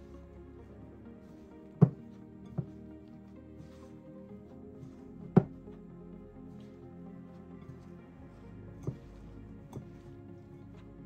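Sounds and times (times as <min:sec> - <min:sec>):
background music with sustained tones: 0:00.0 - 0:11.0.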